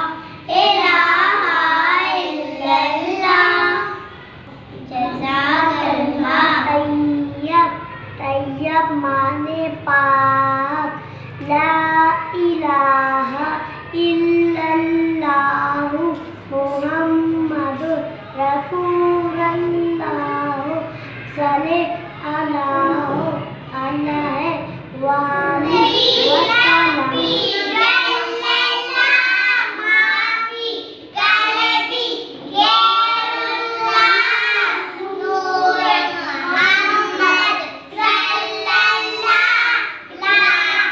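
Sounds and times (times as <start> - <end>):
child singing devotional song: 0.0 - 4.2, 4.8 - 40.9
child breathing: 11.0 - 11.4.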